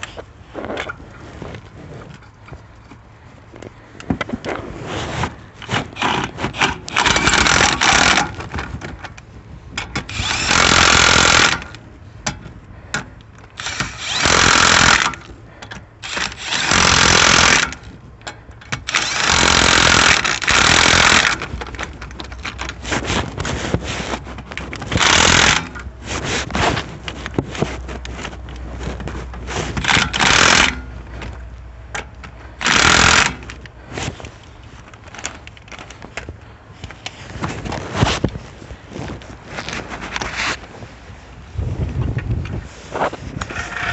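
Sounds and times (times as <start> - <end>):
impact wrench bursts: 5.7 - 8.4, 9.9 - 11.8, 13.0 - 17.9, 18.7 - 21.5, 24.9 - 25.9, 29.8 - 31.0, 32.6 - 33.6.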